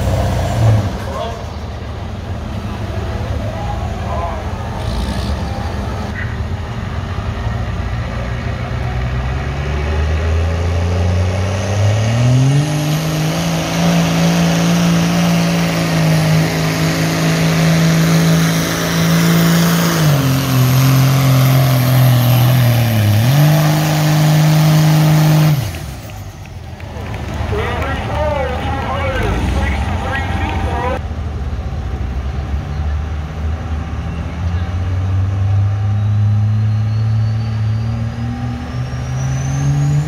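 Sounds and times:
diesel engine under full load: 0:00.0 - 0:40.0.

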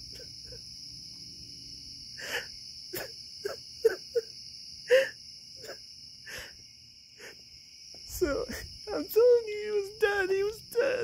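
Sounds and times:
night insects chirring: 0:00.0 - 0:11.0
man sobbing: 0:02.2 - 0:04.3.

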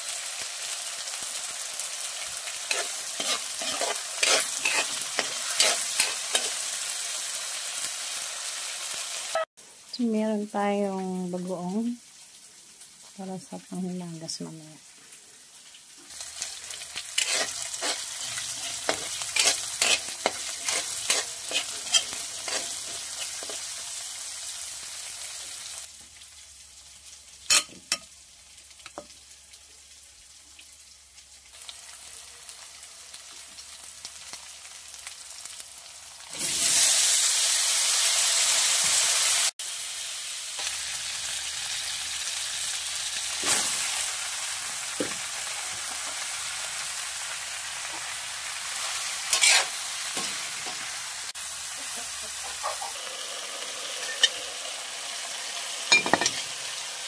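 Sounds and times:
food sizzling in a wok: 0:00.0 - 0:57.0
spatula scraping a pan: 0:02.7 - 0:06.6, 0:16.5 - 0:23.7, 0:49.3 - 0:50.8, 0:54.0 - 0:54.5.

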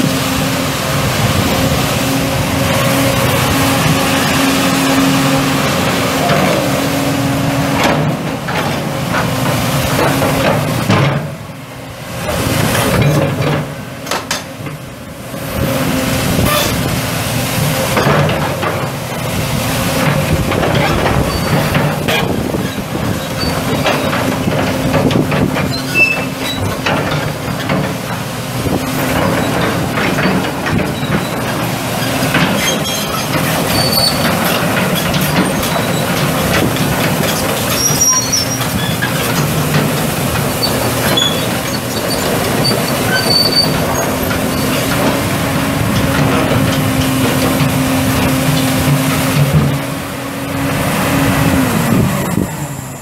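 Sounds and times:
diesel engine running under load: 0:00.0 - 0:53.0
steel tracks clanking and squeaking: 0:00.0 - 0:53.0.

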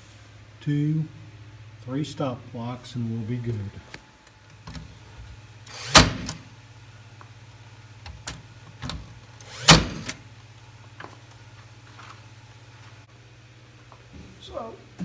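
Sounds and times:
nail gun whir: 0:05.6 - 0:06.4, 0:09.4 - 0:10.2
nail gun shots: 0:05.7 - 0:06.4, 0:09.5 - 0:10.2.

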